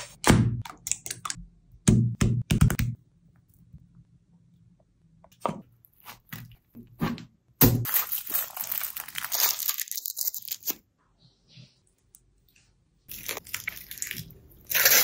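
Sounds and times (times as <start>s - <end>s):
aluminium foil crinkling: 7.8s - 10.8s, 13.1s - 15.0s.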